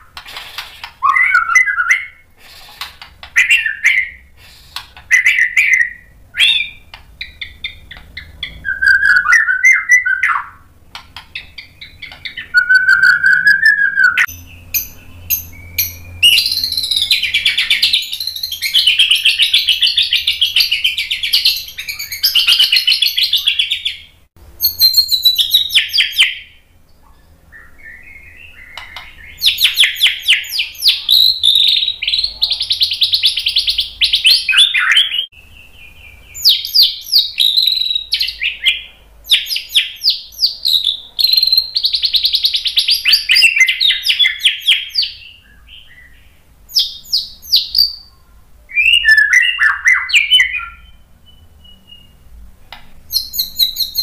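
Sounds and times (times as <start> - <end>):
songbird singing: 0.0 - 54.0.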